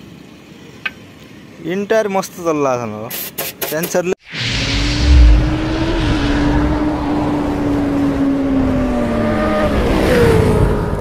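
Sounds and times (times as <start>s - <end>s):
truck engine droning: 4.3s - 10.8s.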